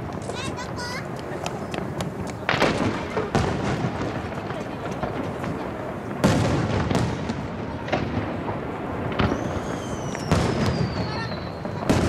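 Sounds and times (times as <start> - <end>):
firework booms with echoes: 0.0 - 12.0
whistling firework shell: 9.2 - 12.0.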